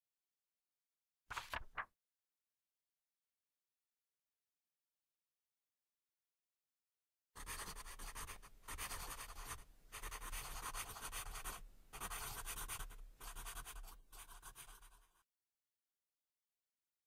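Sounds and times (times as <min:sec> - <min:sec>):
pencils scribbling on paper: 0:07.4 - 0:15.2.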